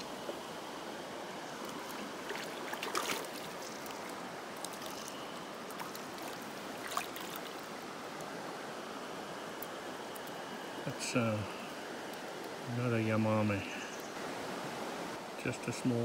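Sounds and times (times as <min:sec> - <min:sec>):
stream running over stones: 0:00.0 - 0:16.0
fish splashing at surface: 0:01.7 - 0:07.7.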